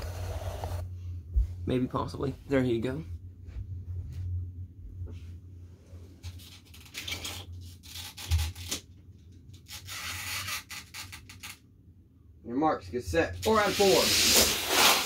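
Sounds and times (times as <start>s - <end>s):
low steady hum: 0.0s - 9.8s, 11.2s - 13.7s
rubbing and scraping handling noise: 13.4s - 15.0s.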